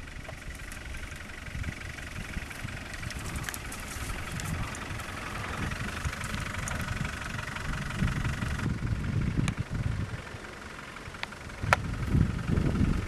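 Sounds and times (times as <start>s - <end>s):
diesel engine at low revs: 0.0s - 13.0s.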